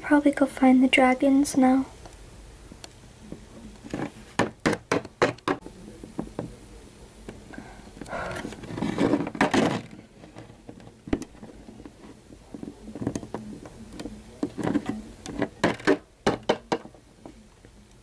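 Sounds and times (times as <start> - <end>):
plastic figurines rustling and tapping: 3.3 - 6.6, 8.0 - 17.8.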